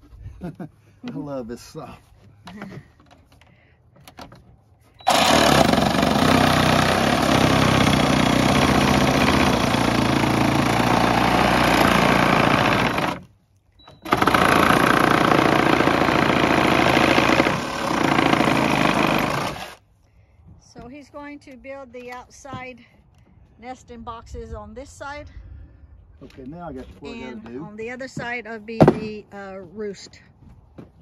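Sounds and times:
reciprocating saw running: 5.1 - 13.3, 14.0 - 19.8.

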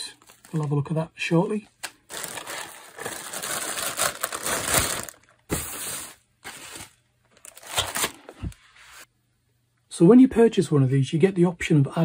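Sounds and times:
packing peanuts rustling and crunching: 2.0 - 8.2.

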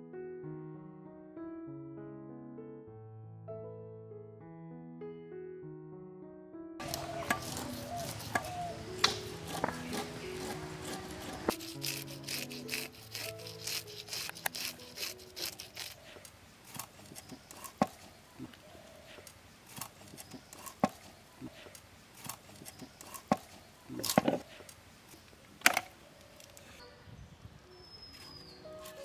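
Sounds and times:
blade chopping fish: 6.8 - 16.0
blade scraping fish scales: 6.8 - 18.2.

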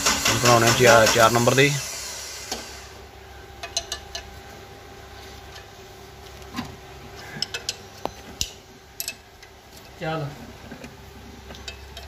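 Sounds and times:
faint steady hum: 1.1 - 12.0
spanner clinking on metal: 3.6 - 4.3, 11.5 - 12.0.

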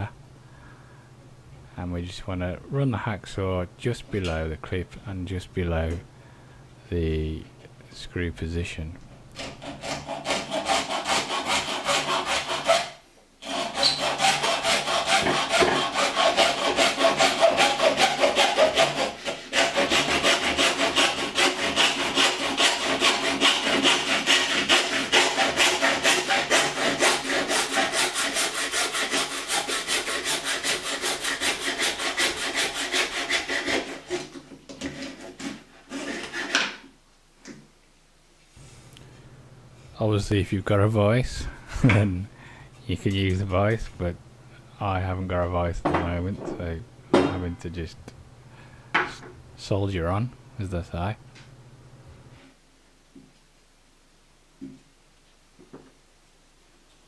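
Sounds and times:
hacksaw cutting hard plastic: 9.4 - 36.8.

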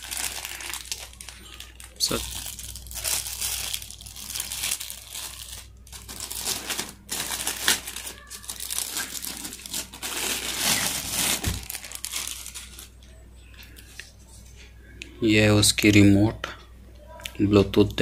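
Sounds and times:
plastic bags crinkling: 0.0 - 13.0.

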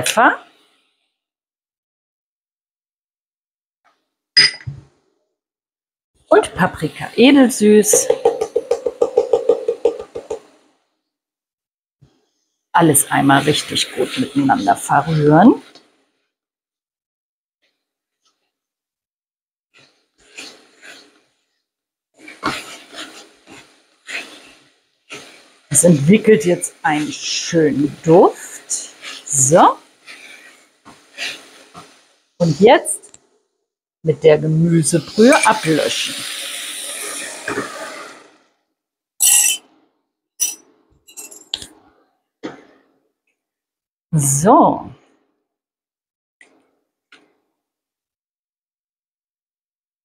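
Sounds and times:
spoon scraping frying pan: 7.7 - 10.5, 22.2 - 32.8, 35.2 - 36.2
spoon knocking against pan: 7.9 - 10.5
utensil clinking on cookware: 39.2 - 39.6, 40.4 - 41.6.

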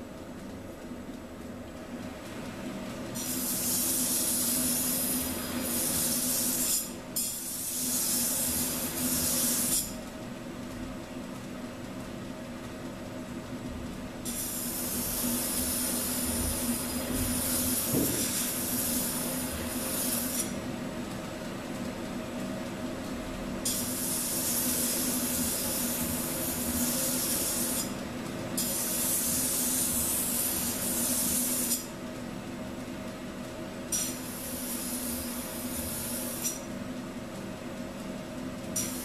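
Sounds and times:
blade grinding hiss: 3.2 - 9.9.

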